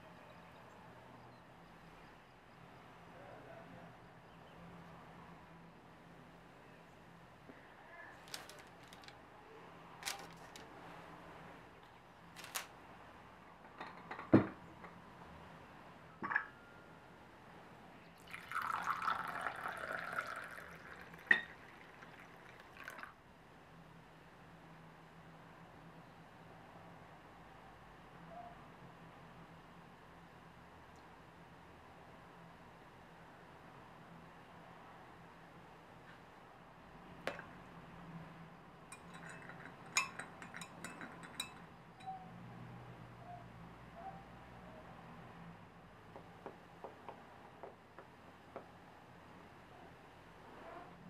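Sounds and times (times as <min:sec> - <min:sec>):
tea pouring into cup: 0:18.1 - 0:23.2
china clink: 0:38.9 - 0:42.2.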